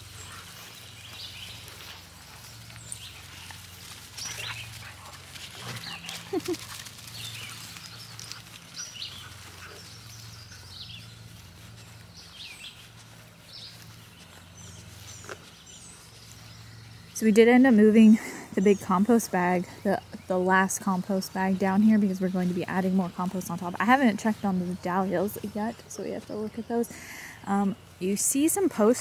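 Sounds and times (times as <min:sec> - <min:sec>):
paws and collars clicking: 0:00.0 - 0:16.6
dogs running through grass: 0:00.0 - 0:29.0
songbirds chirping: 0:00.0 - 0:29.0.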